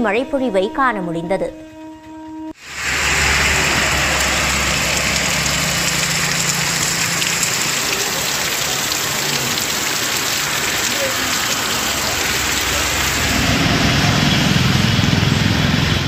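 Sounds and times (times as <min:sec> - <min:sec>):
heavy rain falling: 0:02.6 - 0:16.0
low engine hum: 0:02.6 - 0:16.0.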